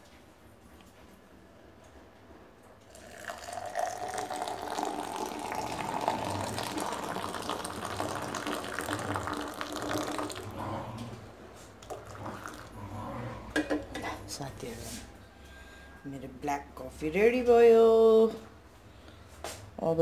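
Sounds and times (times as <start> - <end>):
water pouring into a glass: 2.8 - 10.6, 11.8 - 12.8.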